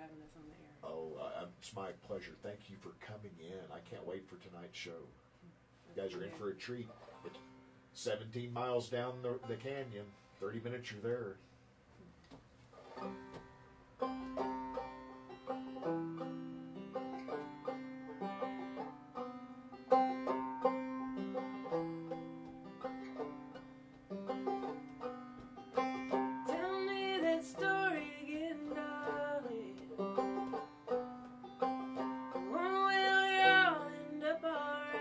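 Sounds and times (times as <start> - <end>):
banjo picking: 6.0 - 10.7, 12.8 - 35.0
acoustic guitar picking: 12.9 - 35.0
woman singing: 26.4 - 30.0, 32.4 - 35.0.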